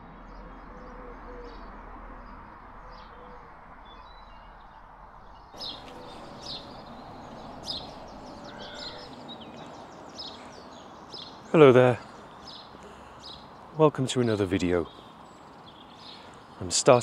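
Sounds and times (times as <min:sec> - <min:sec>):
steady background noise: 0:04.8 - 0:17.0
birds chirping and calling: 0:05.5 - 0:17.0.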